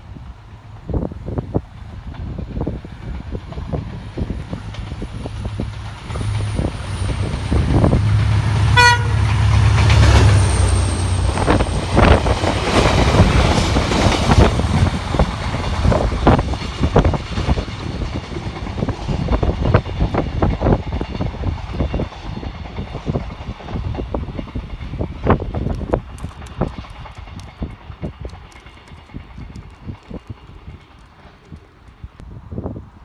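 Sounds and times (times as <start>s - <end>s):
diesel locomotive engine droning: 0.0s - 33.0s
train rumbling past: 0.0s - 33.0s
short train horn toot: 8.7s - 9.3s.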